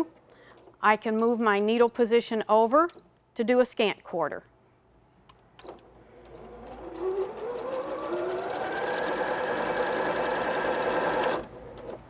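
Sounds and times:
sewing machine stitching: 5.7s - 12.0s.

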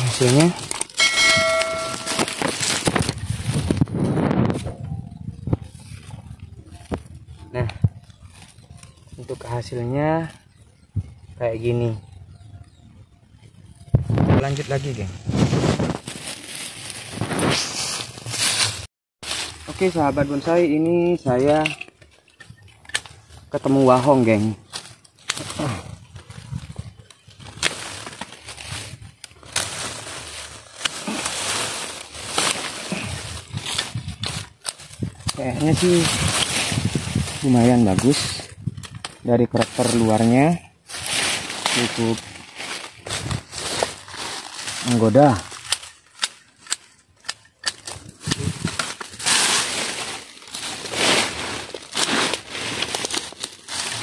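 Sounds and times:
twigs snapping: 0.0s - 3.9s, 20.8s - 26.3s, 27.0s - 40.2s, 40.9s - 54.0s
dry brush rustling and crackling: 0.0s - 11.8s, 13.6s - 54.0s
pruning shears cutting: 29.2s - 40.2s, 45.1s - 49.7s.

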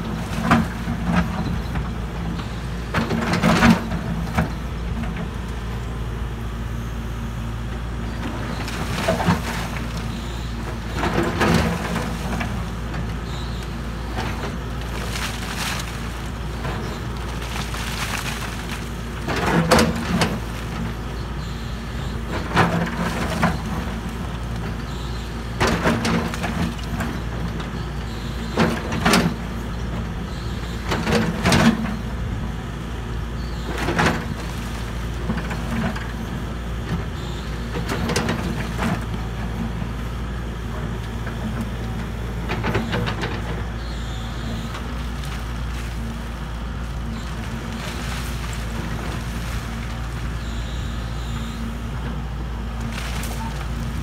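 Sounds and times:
excavator diesel engine running: 0.0s - 54.0s
rock scraping and clattering: 14.2s - 20.5s.

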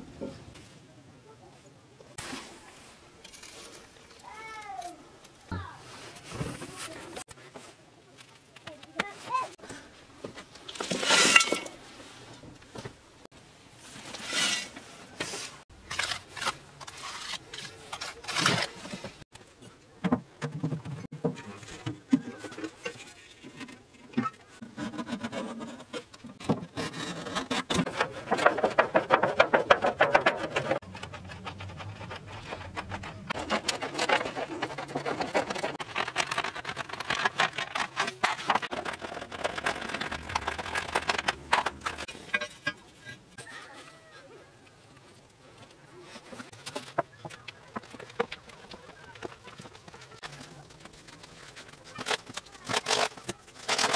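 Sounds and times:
cardboard and pots scraping: 5.8s - 7.7s, 10.4s - 12.4s, 13.8s - 19.2s, 20.5s - 44.0s, 45.9s - 53.9s
mud scraping against brick: 14.0s - 19.2s, 22.8s - 43.5s.

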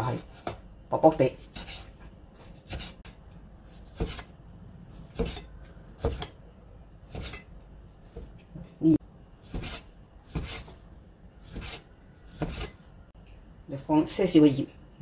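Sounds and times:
cleaver slicing meat: 1.4s - 3.1s, 3.7s - 4.3s, 4.9s - 6.4s, 7.1s - 8.3s, 9.4s - 10.8s, 11.4s - 12.8s.

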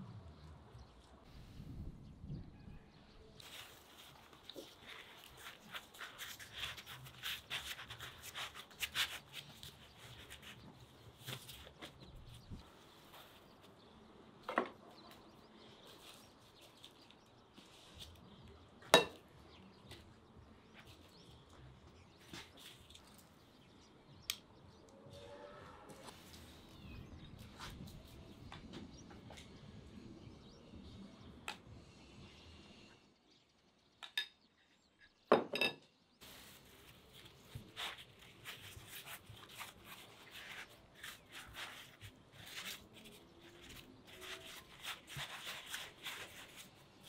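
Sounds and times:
flatbread crinkling and rustling: 3.4s - 14.1s, 15.0s - 18.7s, 36.2s - 47.0s.

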